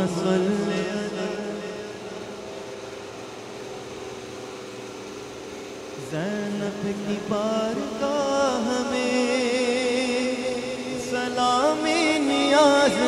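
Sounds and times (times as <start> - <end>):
devotional chanting: 0.0 - 3.0, 5.9 - 13.0
steady low hum: 0.0 - 13.0.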